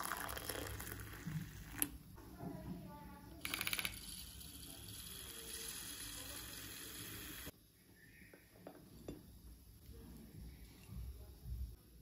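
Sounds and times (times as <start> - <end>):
milk frother whirring: 3.4 - 7.5.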